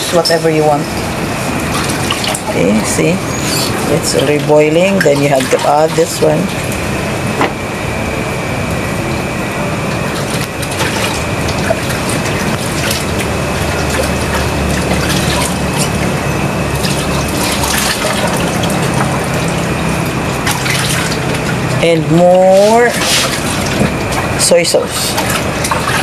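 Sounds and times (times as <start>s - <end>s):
liquid boiling in saucepan: 8.7s - 26.0s.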